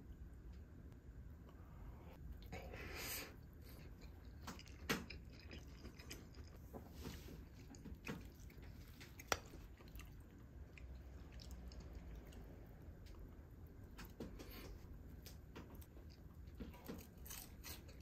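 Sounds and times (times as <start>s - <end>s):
chewing: 3.6s - 13.2s, 14.0s - 18.0s.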